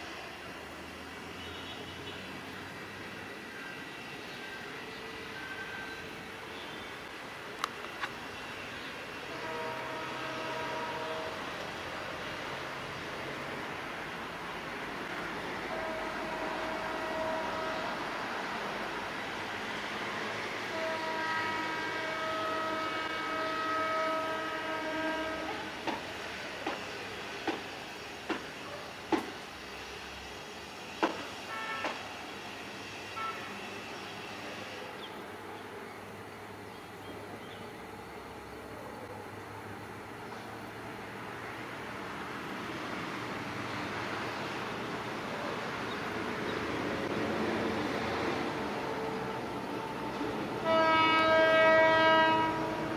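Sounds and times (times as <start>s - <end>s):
train rumbling: 2.1s - 52.9s
locomotive horn blast: 9.2s - 11.6s, 15.6s - 18.2s, 20.7s - 25.7s, 31.5s - 32.1s, 33.2s - 33.8s, 49.5s - 52.9s.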